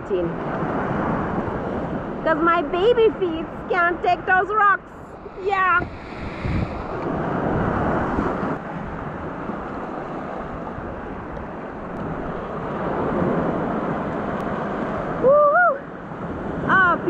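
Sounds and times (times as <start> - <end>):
wind buffeting microphone: 0.0 - 17.0
sea surf washing over rocks: 3.4 - 17.0.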